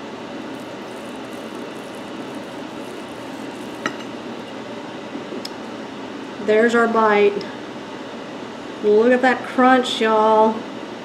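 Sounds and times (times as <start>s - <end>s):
knife crunching fried breading: 0.5s - 4.6s.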